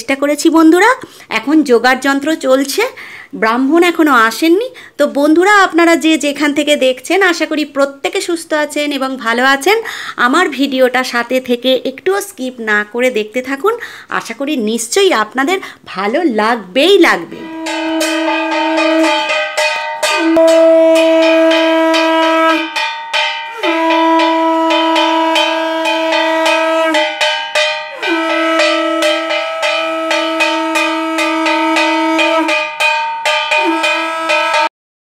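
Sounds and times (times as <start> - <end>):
conch shell blasts: 17.3 - 34.7
gong beaten fast: 17.3 - 34.7.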